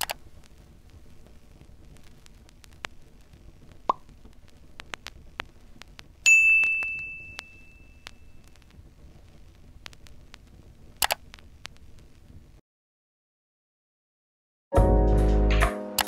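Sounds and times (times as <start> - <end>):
faint scattered clicks: 0.0 - 12.6
bright bell-like ding: 6.3 - 8.1.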